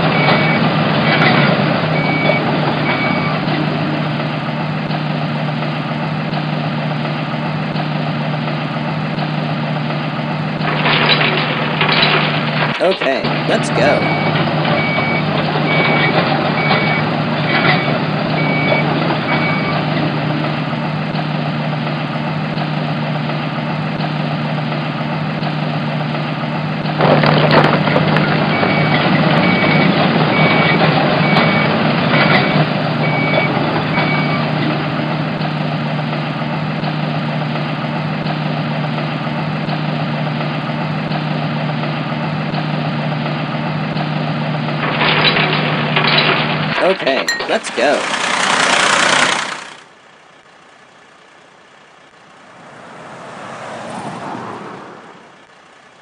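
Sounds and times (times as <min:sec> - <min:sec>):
high reversing beep: 0:00.0 - 0:03.5, 0:13.6 - 0:19.8, 0:28.5 - 0:34.6
excavator engine hum: 0:00.0 - 0:56.0.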